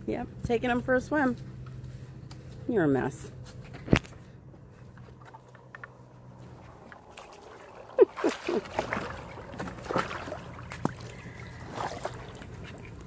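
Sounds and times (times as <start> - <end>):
dog splashing in pool water: 6.4 - 13.0.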